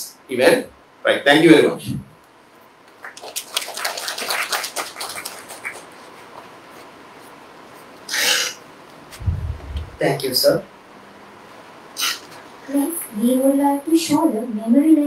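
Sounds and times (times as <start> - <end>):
audience applause: 3.0 - 6.0
low thump: 9.2 - 10.0
short hissing burst: 12.0 - 12.3.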